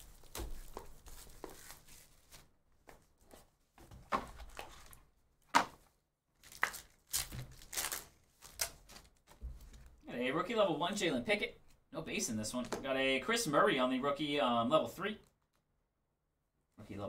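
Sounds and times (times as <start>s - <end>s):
foil pack crinkling and tearing: 6.4s - 9.3s.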